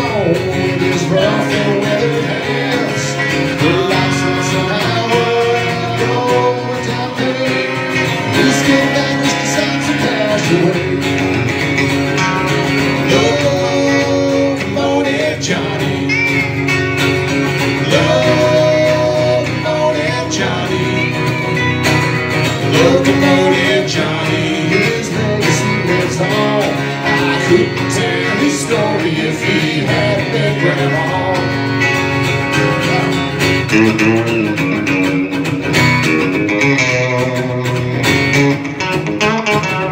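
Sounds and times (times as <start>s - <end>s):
woman and men singing: 0.0s - 11.3s, 13.0s - 16.2s, 17.8s - 21.4s, 22.6s - 31.7s
acoustic guitar: 0.0s - 39.9s
electric guitar: 0.0s - 39.9s.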